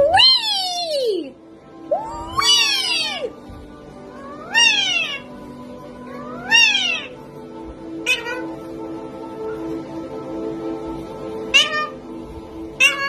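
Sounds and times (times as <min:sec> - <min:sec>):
parrot calling: 0:01.9 - 0:03.4, 0:04.2 - 0:05.4, 0:06.1 - 0:07.2, 0:08.0 - 0:08.6, 0:11.5 - 0:12.1, 0:12.7 - 0:13.0.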